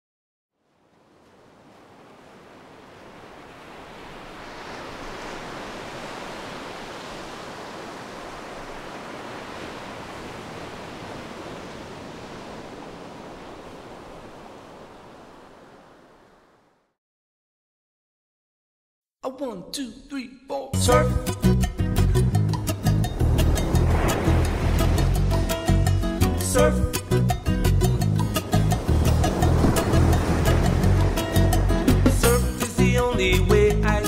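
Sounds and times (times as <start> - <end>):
ocean waves washing: 0.6 - 16.9, 22.5 - 33.2.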